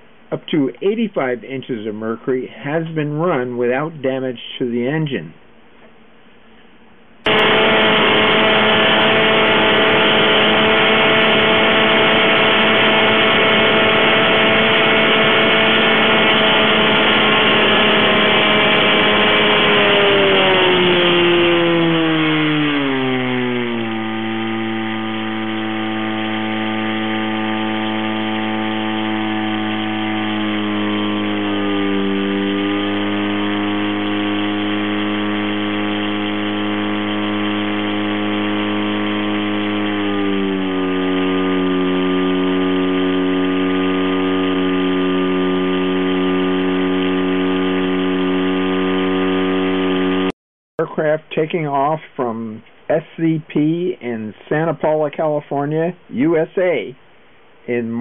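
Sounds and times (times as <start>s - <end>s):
aircraft engine at full power: 7.3s - 50.4s.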